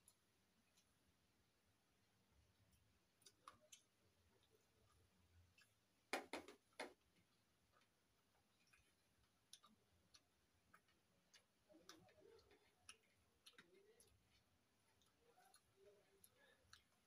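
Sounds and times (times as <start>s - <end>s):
fingers mixing rice: 2.6s - 17.0s.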